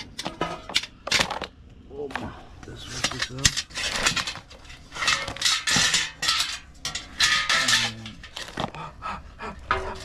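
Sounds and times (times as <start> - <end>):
crabs clattering in cooking pot: 2.9 - 8.6.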